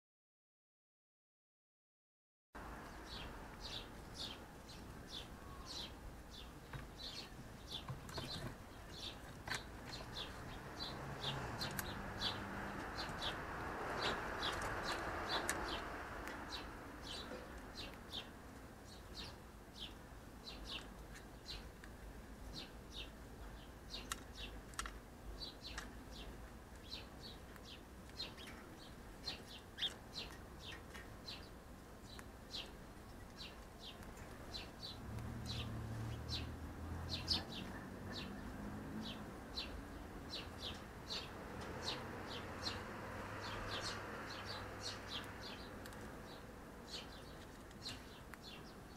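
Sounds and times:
bird chirping: 2.8s - 48.9s.

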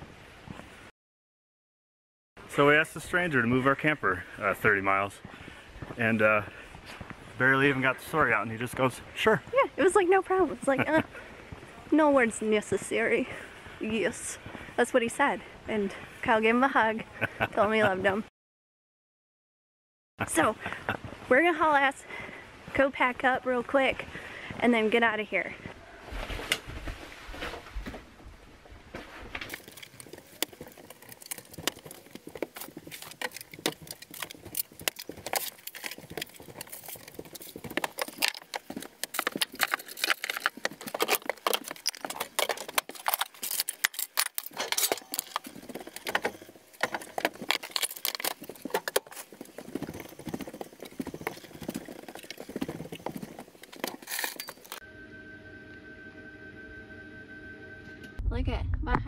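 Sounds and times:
household items clattering and knocking: 28.9s - 54.8s.

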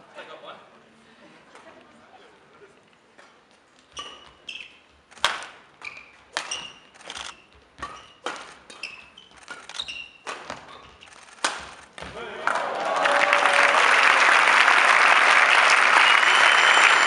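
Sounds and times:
racket striking shuttlecock: 3.2s - 4.5s, 5.2s - 7.2s, 7.8s - 12.1s
shoes squeaking on floor: 3.2s - 12.2s.

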